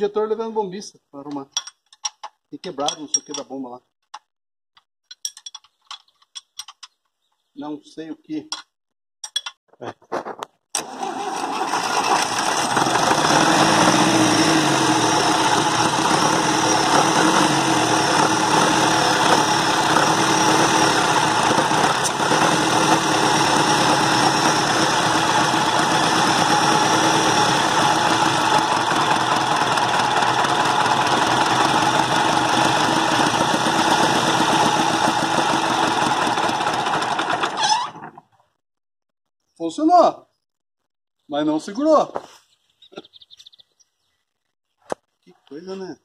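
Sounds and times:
tractor diesel engine running: 10.8 - 38.1.

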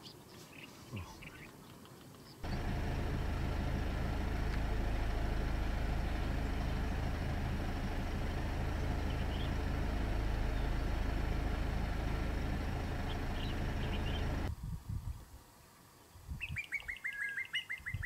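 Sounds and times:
car engine idling: 2.4 - 14.5.

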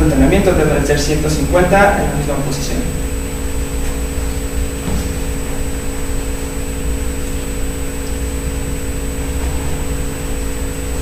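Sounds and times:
constant mid-pitched tone: 0.0 - 11.0
room machine hum and hiss: 0.0 - 11.0.

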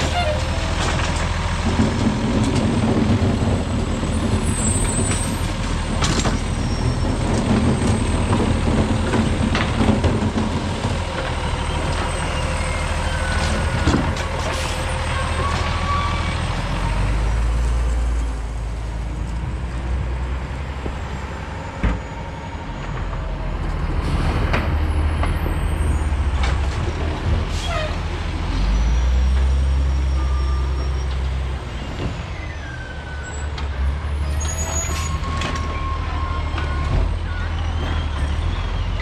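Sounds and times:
garbage truck diesel engine: 0.0 - 39.0
high brake squeals: 6.3 - 7.2, 11.5 - 13.8, 14.6 - 16.4, 28.7 - 39.0.

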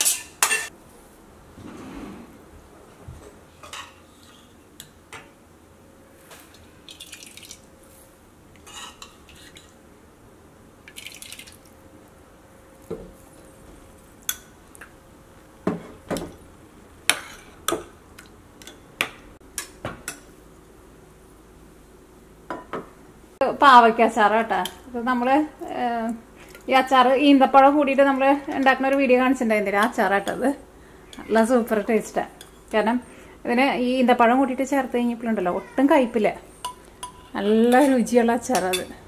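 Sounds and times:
metal spoons clinking on bowls: 36.6 - 39.0.

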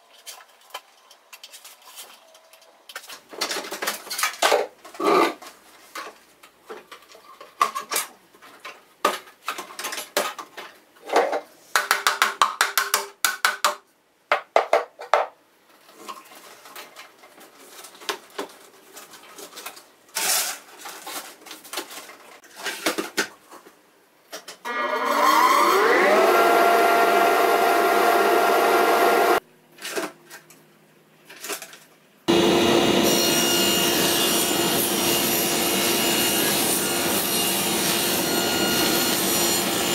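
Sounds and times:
motor whining: 24.7 - 29.4
table saw humming: 24.7 - 29.4, 32.3 - 39.9.

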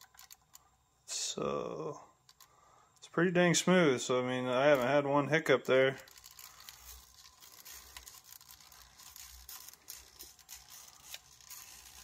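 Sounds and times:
toy car tyres scuffing: 4.7 - 12.0.

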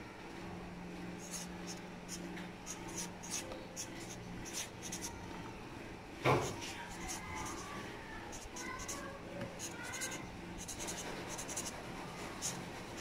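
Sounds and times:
marker pen scratching on paper: 1.2 - 5.1, 6.3 - 7.7, 8.3 - 9.0, 9.6 - 13.0.

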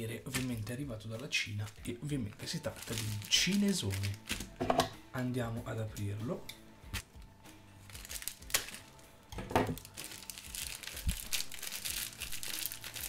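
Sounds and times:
plastic crinkling: 0.2 - 4.5, 7.9 - 8.9, 9.7 - 13.0
plastic bag tearing snaps: 0.3 - 0.7, 2.7 - 4.5, 7.9 - 8.9, 9.8 - 13.0.

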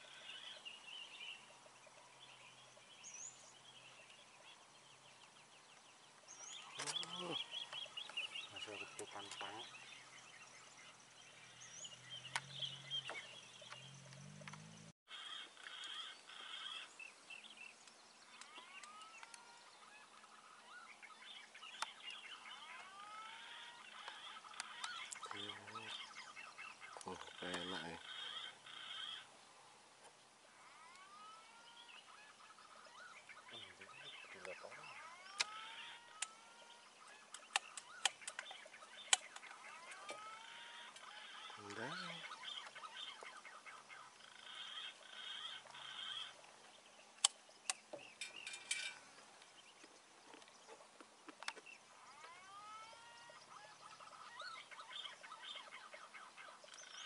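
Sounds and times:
wild birds chirping: 0.0 - 57.0
sharp clicks: 35.3 - 36.4, 37.3 - 40.2, 47.2 - 47.9.

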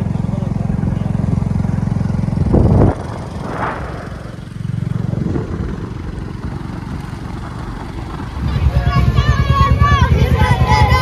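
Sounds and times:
motorcycle engine running: 0.0 - 11.0
wind on microphone: 2.4 - 9.0.

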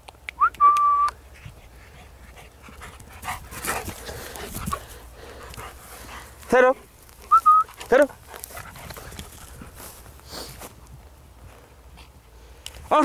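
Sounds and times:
steady whistle note: 0.4 - 1.2, 7.3 - 7.7
dog panting: 1.3 - 10.2
running through grass and brush: 1.4 - 12.2.

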